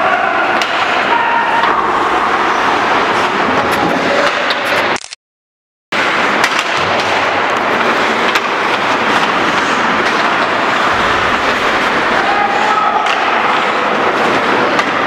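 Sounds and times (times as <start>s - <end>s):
hockey sticks clacking on puck: 0.5s - 1.8s, 6.0s - 15.0s
skate blades scraping ice: 0.5s - 5.0s, 6.0s - 15.0s.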